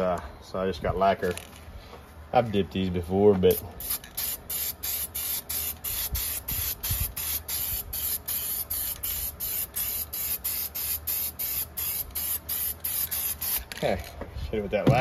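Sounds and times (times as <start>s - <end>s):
aerosol can spraying: 3.5s - 13.7s.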